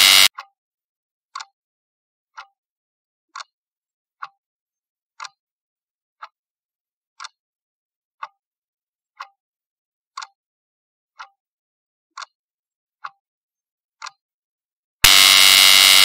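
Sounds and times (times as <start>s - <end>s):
clock ticking: 0.0s - 0.5s, 1.4s - 1.6s, 4.2s - 4.4s, 5.2s - 5.4s, 10.2s - 10.4s, 11.2s - 11.4s, 12.2s - 12.4s.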